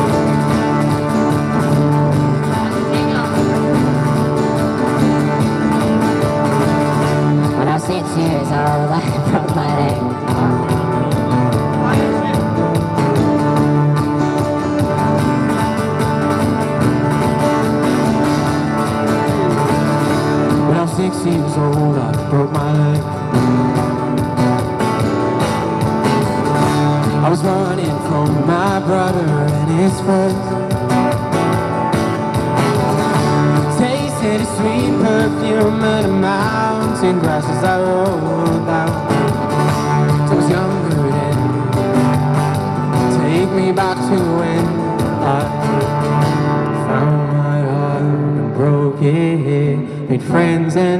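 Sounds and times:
acoustic guitars strummed: 0.0 - 50.9
man singing: 7.2 - 14.2, 18.3 - 23.9, 26.9 - 31.1, 33.4 - 50.9.

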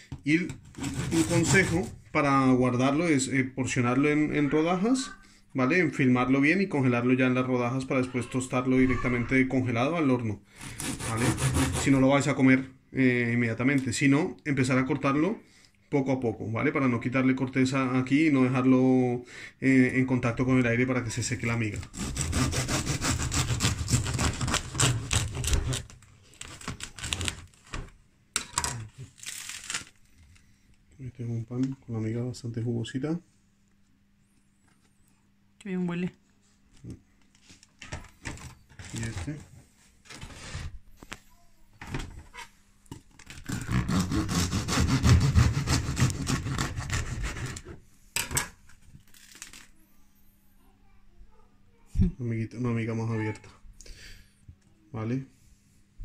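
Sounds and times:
knife sawing through bread crust: 0.6 - 2.0, 10.5 - 12.1, 21.7 - 27.4, 43.4 - 47.8.

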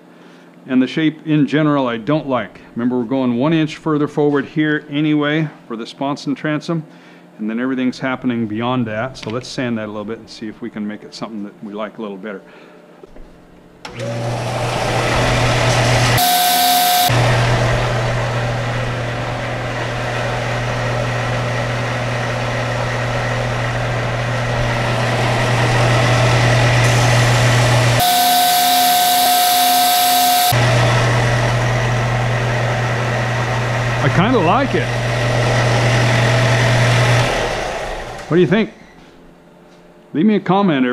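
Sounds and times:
belt sander hum and hiss: 13.8 - 38.6
sander high whine: 13.9 - 38.6.

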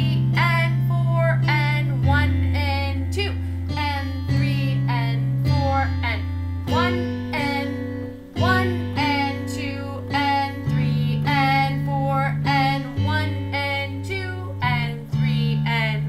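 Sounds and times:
held bass notes: 0.0 - 16.0.

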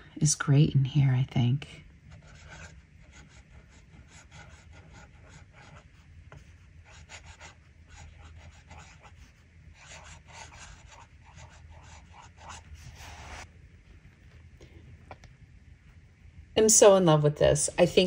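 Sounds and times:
fountain pen scratching on paper: 2.1 - 13.5.

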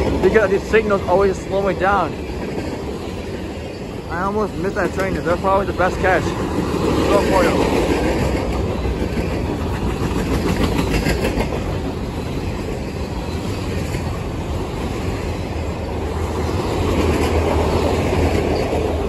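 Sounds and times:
train wheels rumbling on rail: 0.0 - 19.0
wheels clicking over rail joints: 0.0 - 19.0.

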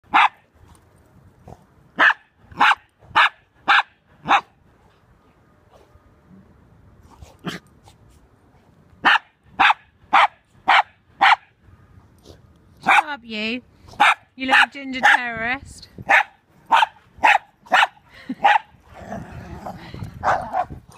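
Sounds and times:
dog barking: 0.1 - 0.4, 2.0 - 4.5, 9.0 - 11.5, 12.8 - 13.1, 14.0 - 15.2, 16.1 - 18.6.

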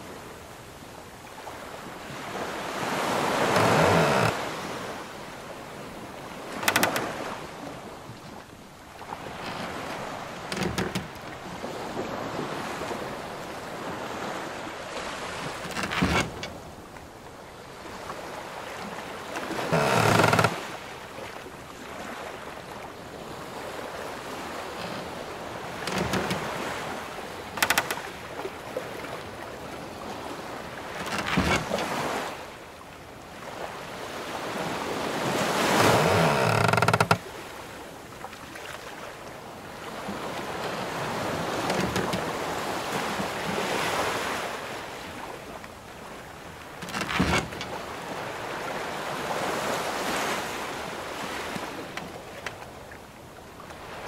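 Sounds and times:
sea waves washing: 0.0 - 32.7, 33.3 - 54.0
ship timbers creaking: 3.0 - 4.7, 6.4 - 7.4, 9.2 - 11.4, 15.4 - 16.7, 19.4 - 20.8, 25.6 - 28.2, 30.8 - 32.0, 35.6 - 37.3, 41.6 - 42.4, 46.7 - 47.8.

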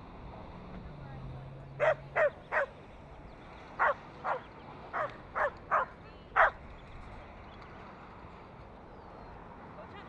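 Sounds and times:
dog barking: 1.8 - 2.7, 3.8 - 6.6.

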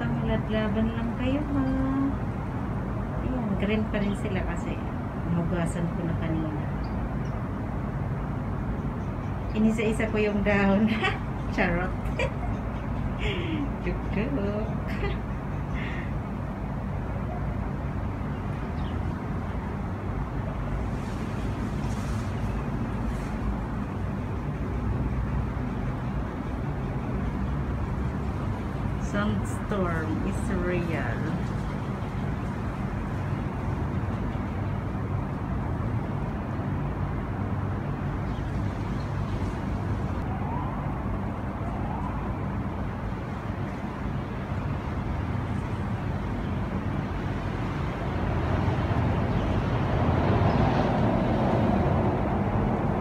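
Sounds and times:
distant siren wailing: 40.1 - 46.4.

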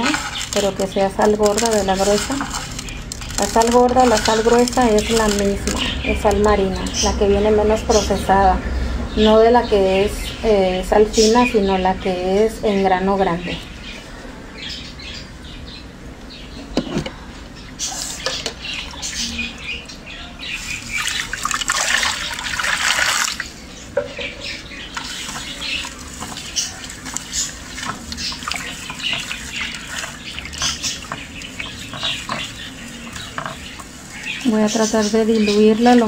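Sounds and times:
water poured into clay dish: 20.6 - 23.5, 25.0 - 34.4.

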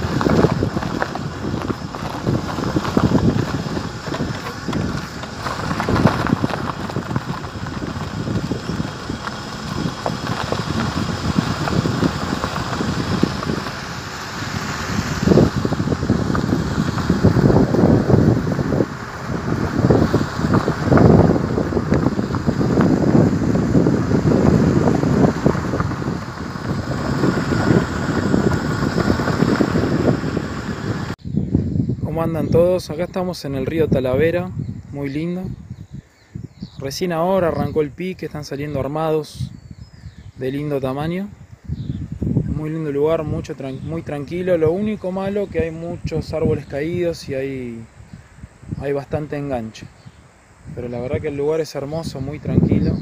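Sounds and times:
vehicle running on gravel road: 0.0 - 31.2, 42.0 - 53.0
steady low rumble: 0.0 - 36.7
wind buffeting microphone: 0.0 - 53.0.

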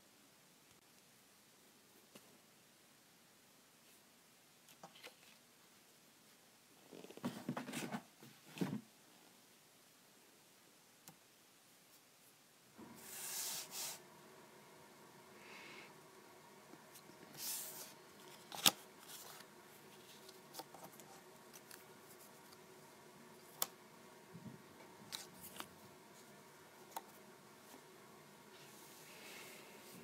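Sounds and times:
paper rustling: 17.0 - 22.6.

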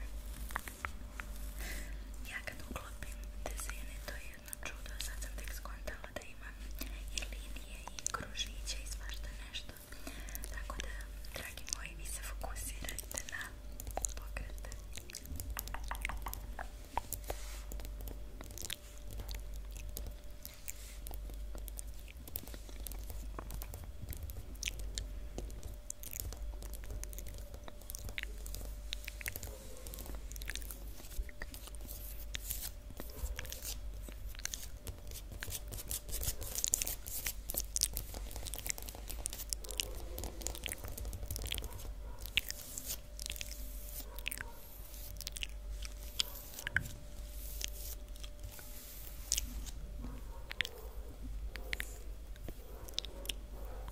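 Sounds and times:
wet mouth sounds: 12.8 - 49.8.

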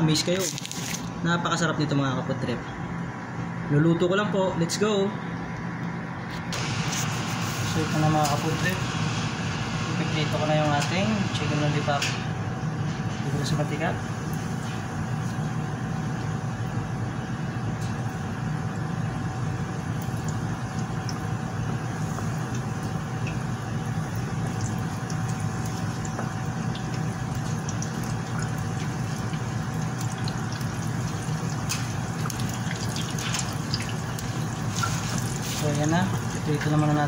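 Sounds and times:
chicken deep-frying in hot oil: 6.5 - 12.1, 13.1 - 37.0.

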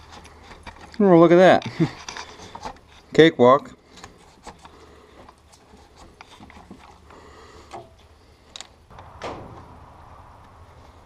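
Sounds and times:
hands handling engine parts: 0.0 - 3.2, 3.8 - 8.8.

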